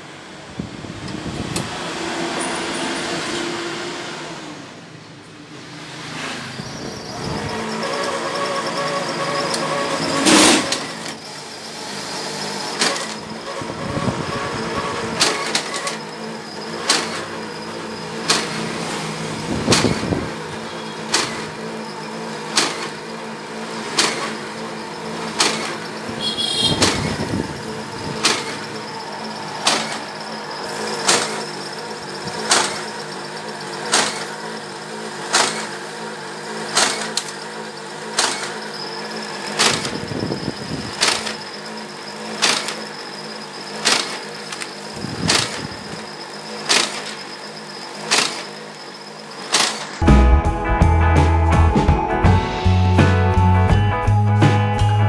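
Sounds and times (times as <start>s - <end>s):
motor and rollers running: 0.0s - 50.0s
sharp machine click: 7.8s - 11.3s, 12.4s - 14.1s, 14.7s - 17.5s, 18.1s - 21.8s, 22.5s - 23.1s, 23.8s - 34.5s, 35.2s - 35.9s, 36.6s - 48.8s, 49.4s - 50.0s.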